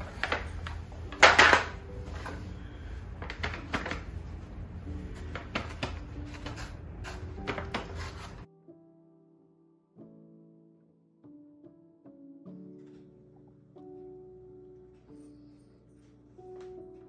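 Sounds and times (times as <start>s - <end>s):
foil pans clattering and crinkling: 0.0s - 2.4s.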